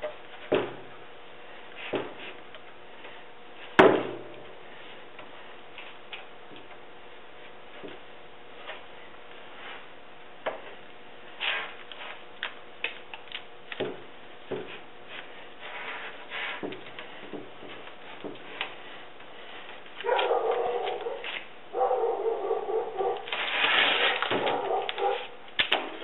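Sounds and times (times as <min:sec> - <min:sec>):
brush strokes scraping: 0:14.7 - 0:16.7.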